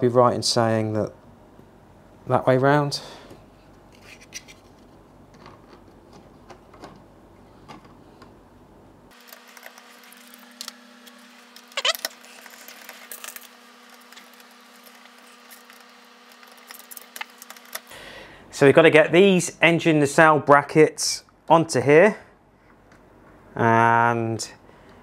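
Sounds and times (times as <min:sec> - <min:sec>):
faint steady hum: 0:00.0 - 0:25.0
plastic parts clicking and tapping: 0:05.3 - 0:08.4
squeaky scrape: 0:11.6 - 0:13.2.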